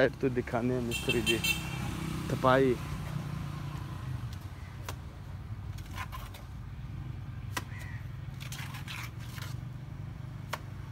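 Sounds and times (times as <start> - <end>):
trowel scraping: 5.7 - 6.5, 8.3 - 9.7.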